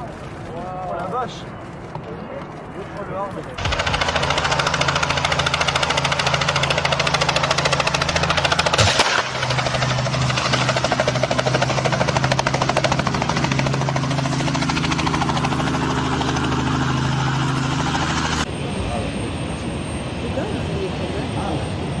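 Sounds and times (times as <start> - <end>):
helicopter engine drone: 0.0 - 22.0
helicopter rotor chopping: 0.0 - 22.0
sudden loud burst: 3.6 - 11.1.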